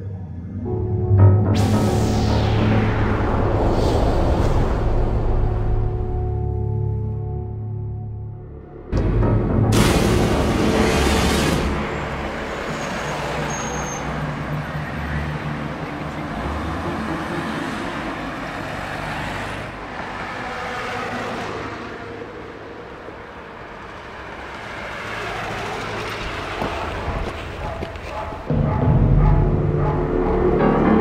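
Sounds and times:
vehicles passing: 8.9 - 31.0
car and bus engines running: 9.7 - 28.5.

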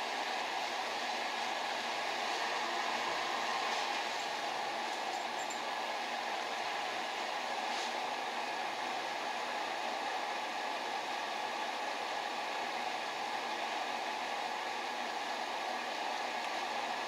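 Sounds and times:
torch flame hissing: 0.0 - 8.6.

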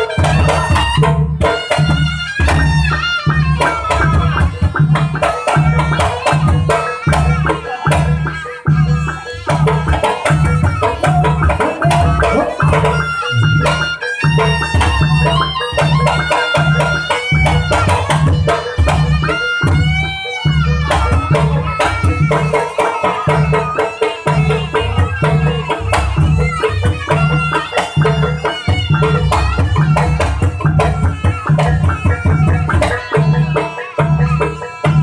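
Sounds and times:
hand drums beating: 0.0 - 35.0
high pitch-bending melody: 0.0 - 35.0.

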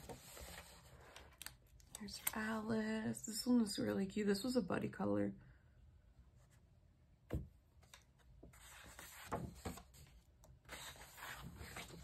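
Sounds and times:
paper pages rustling: 7.8 - 12.0.

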